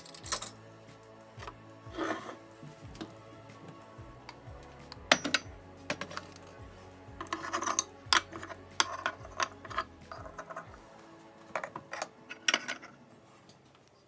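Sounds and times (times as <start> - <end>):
clatter of kitchen things: 11.5 - 13.0.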